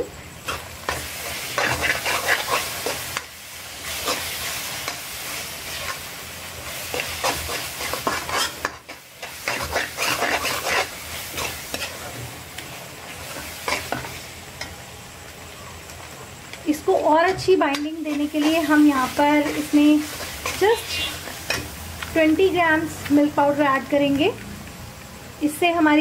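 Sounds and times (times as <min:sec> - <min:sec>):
mixture sizzling: 0:00.0 - 0:26.0
spoon scraping metal pan: 0:00.5 - 0:03.0, 0:06.9 - 0:12.1.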